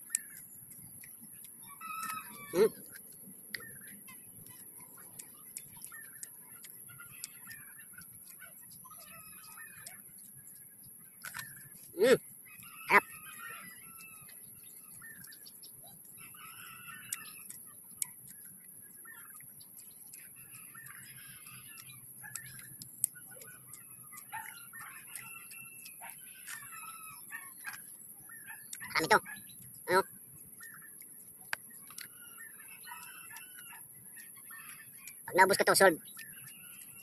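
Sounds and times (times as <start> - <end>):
small clicks: 0.0 - 11.9, 16.3 - 27.0.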